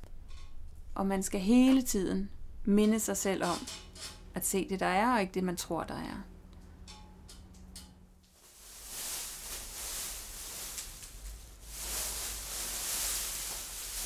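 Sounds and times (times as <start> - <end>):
plastic sheeting rustling: 8.3 - 14.0.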